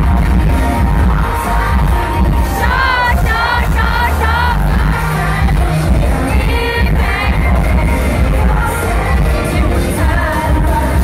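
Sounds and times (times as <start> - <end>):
pop song over sound system: 0.0 - 11.0
audience cheering: 1.5 - 4.7.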